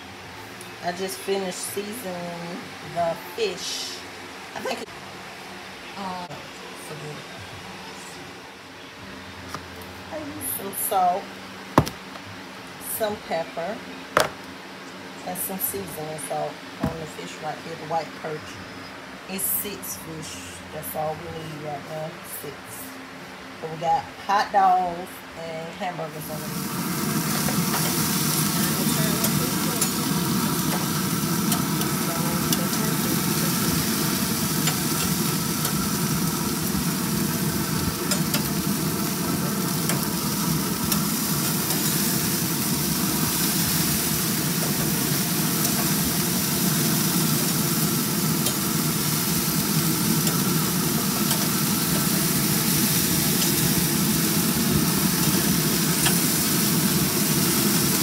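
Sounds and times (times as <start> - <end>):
meat sizzling on a grill: 26.2 - 58.0
tongs clicking against grate: 56.0 - 56.2.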